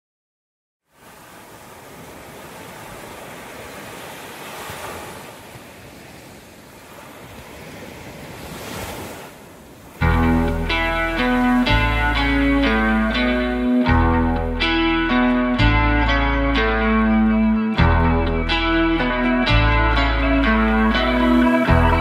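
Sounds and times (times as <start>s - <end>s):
waves breaking and washing ashore: 0.8s - 22.0s
electric guitar music: 10.0s - 22.0s.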